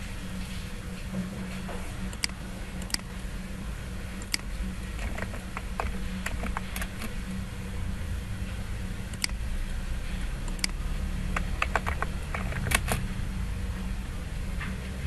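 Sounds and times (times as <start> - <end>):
steady low hum: 0.0 - 15.0
computer mouse clicks: 4.2 - 7.1, 9.1 - 9.4, 10.4 - 13.0
keyboard typing: 4.2 - 7.2, 10.5 - 13.0.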